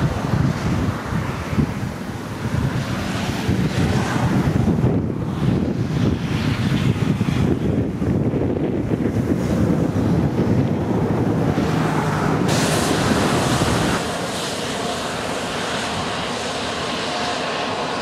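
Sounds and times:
wind buffeting microphone: 0.0s - 18.0s
hissing rush: 9.1s - 18.0s.

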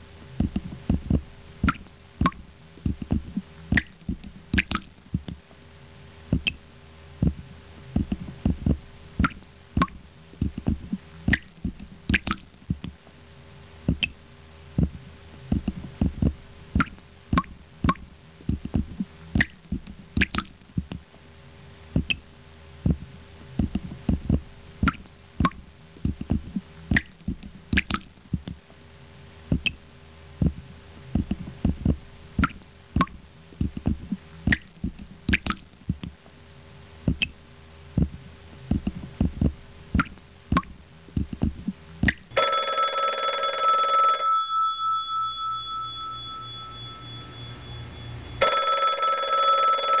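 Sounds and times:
faint steady hum: 0.0s - 50.0s
telephone ringing: 42.3s - 50.0s.

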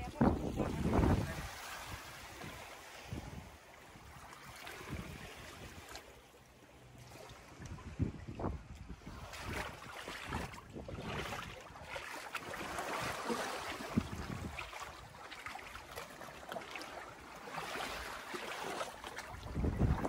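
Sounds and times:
wind buffeting microphone: 0.0s - 4.2s, 7.5s - 11.9s, 13.8s - 15.2s, 19.3s - 20.0s
surf washing on beach: 0.0s - 6.0s, 8.4s - 16.0s.

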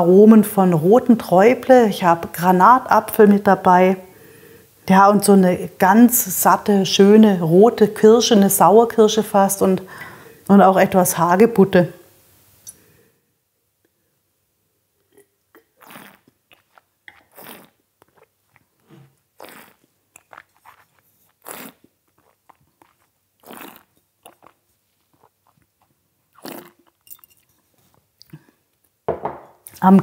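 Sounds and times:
person spitting: 15.0s - 27.0s
wine slurping and swishing: 15.8s - 25.6s, 26.3s - 27.6s.

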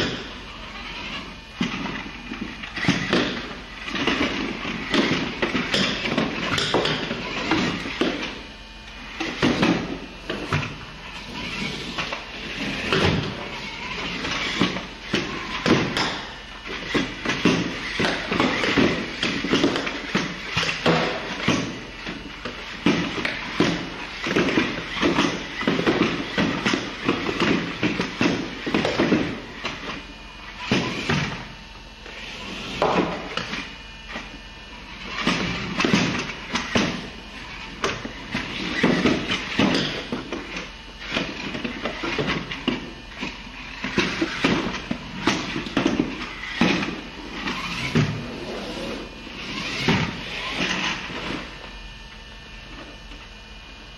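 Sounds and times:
remote control car driving: 0.0s - 51.7s.

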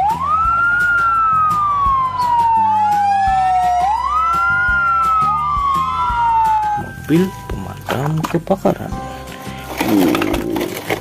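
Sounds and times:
fire engine sirens wailing: 0.0s - 7.1s.

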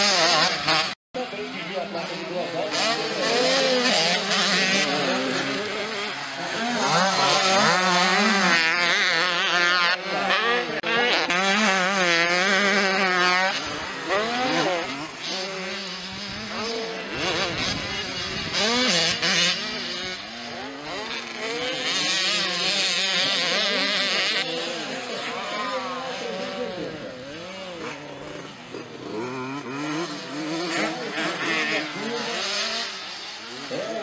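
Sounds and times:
dirt bike engines revving: 0.0s - 34.0s.

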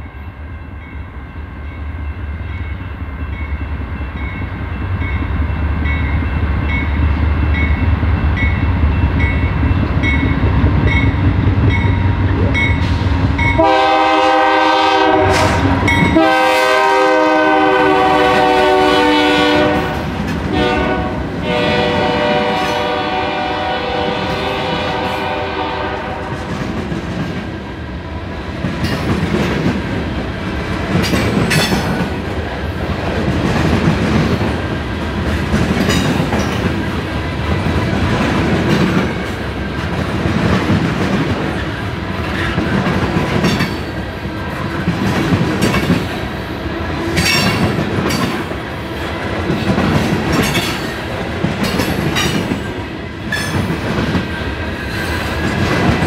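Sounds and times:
train rumble: 0.8s - 56.0s
locomotive air horn blasts: 13.6s - 26.5s.

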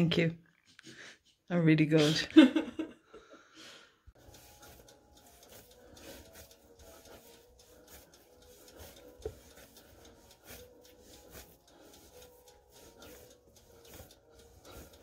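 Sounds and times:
hands kneading dough: 4.2s - 15.0s.

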